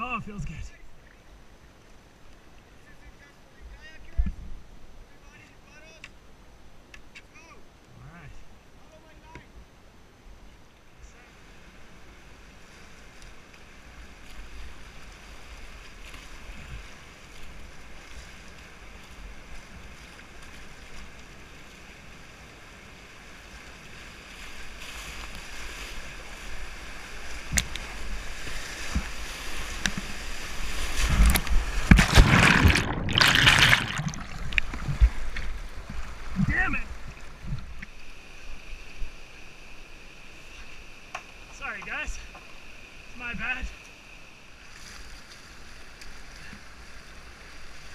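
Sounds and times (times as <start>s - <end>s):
waves hitting boat: 11.1s - 39.3s
paddle strokes splashing: 11.8s - 39.1s
whitewater rushing: 27.6s - 37.1s.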